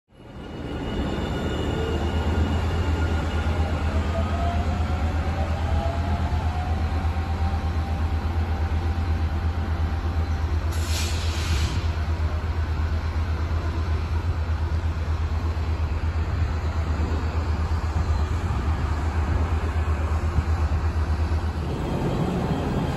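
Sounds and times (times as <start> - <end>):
train low rumble: 0.2 - 22.9
short hiss: 10.7 - 11.9.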